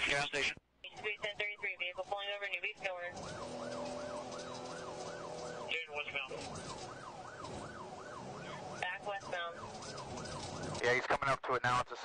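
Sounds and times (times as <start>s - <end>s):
police siren yelp: 2.8s - 10.8s.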